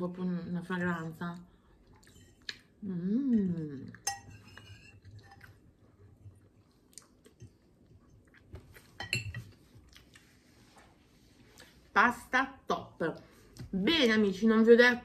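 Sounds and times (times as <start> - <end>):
person chewing: 5.0 - 10.6.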